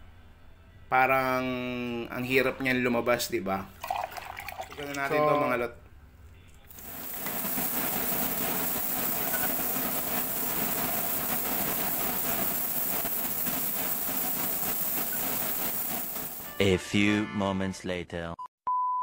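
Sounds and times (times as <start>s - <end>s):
spray gun hissing: 6.7s - 16.6s.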